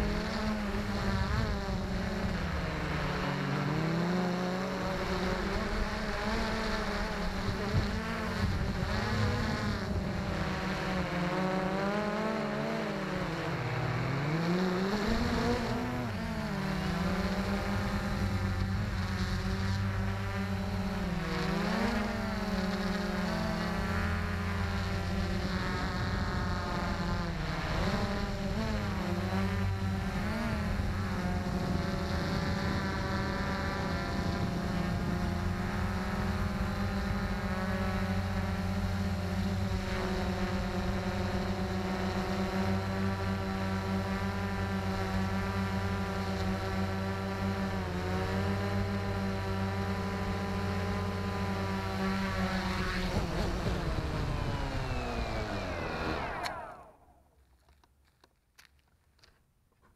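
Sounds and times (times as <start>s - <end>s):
drone propellers whining: 0.0s - 57.7s.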